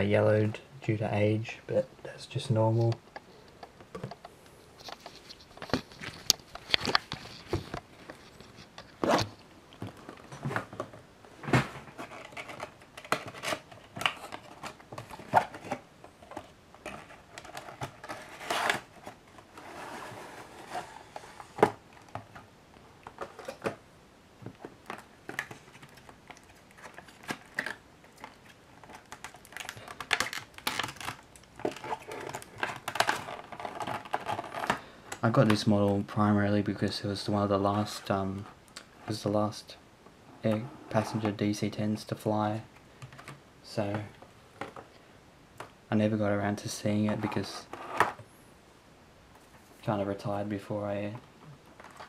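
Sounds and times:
plastic cradle crinkling and clicking: 2.8s - 11.0s, 11.9s - 19.6s, 24.4s - 36.0s, 51.6s - 52.0s
cardboard box sliding and scraping: 19.5s - 21.6s.

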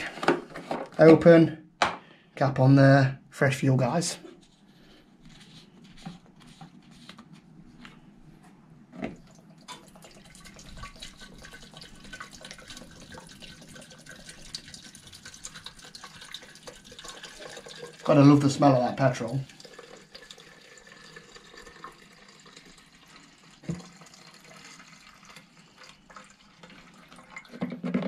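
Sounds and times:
fuel trickling into tank: 9.2s - 27.6s.

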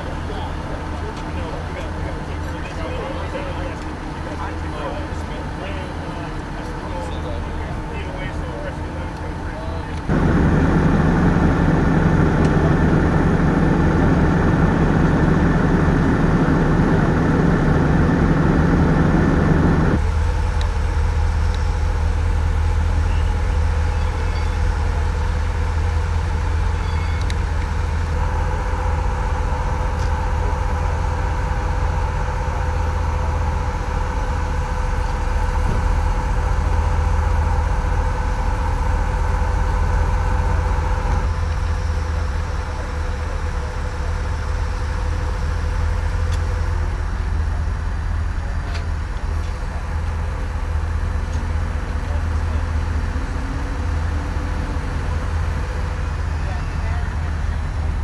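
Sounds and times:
harsh engine layer: 0.0s - 58.0s
vehicle engines idling: 0.0s - 58.0s
steady hum: 10.1s - 22.7s.

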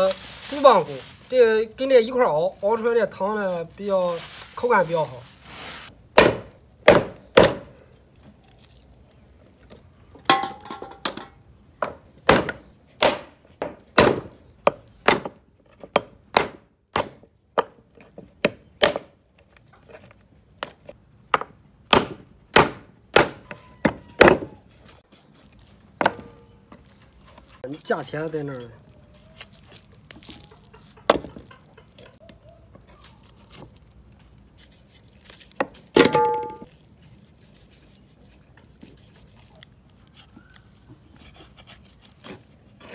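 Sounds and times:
cleaver chopping bones on board: 6.2s - 7.7s, 12.3s - 17.7s.

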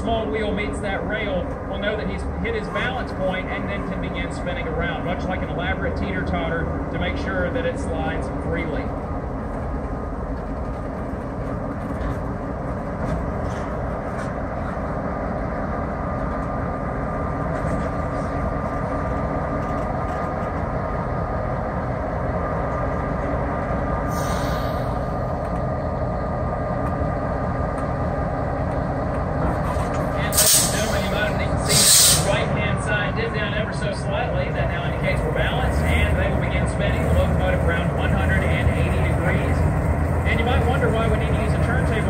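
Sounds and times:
diesel locomotive engine idling: 0.0s - 42.0s
short air hiss: 24.1s - 25.0s, 30.3s - 32.4s.

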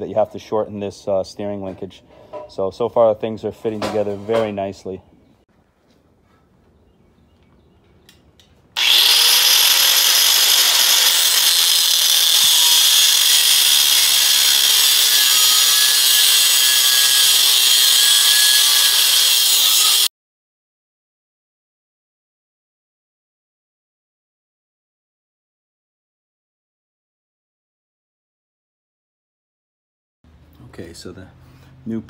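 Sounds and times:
angle grinder cutting steel: 8.8s - 20.1s.

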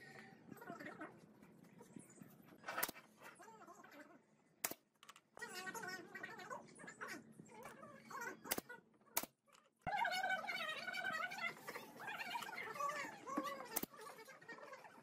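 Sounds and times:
nail gun shots: 4.6s - 4.8s
wavering pitched calls: 9.9s - 15.0s.

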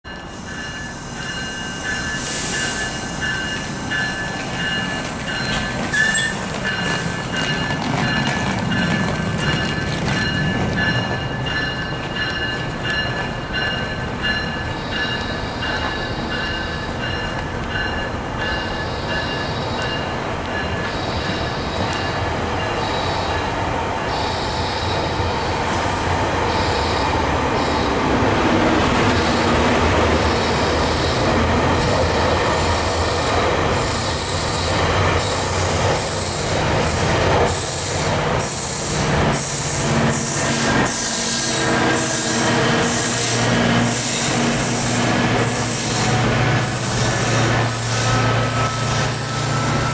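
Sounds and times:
diesel locomotive drone: 0.0s - 49.9s
train coaches rumbling: 0.0s - 49.9s
high wheel squeal: 0.4s - 7.6s, 40.4s - 49.9s.

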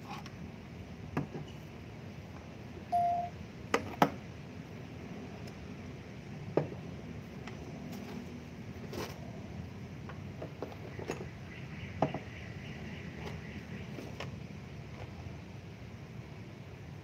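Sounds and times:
short electronic beep: 2.9s - 3.4s.

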